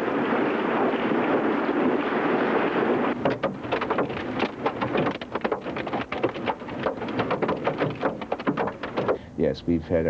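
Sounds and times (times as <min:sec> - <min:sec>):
wind noise on microphone: 0:00.0 - 0:09.3
hailstones clattering on hard surfaces: 0:03.2 - 0:09.2.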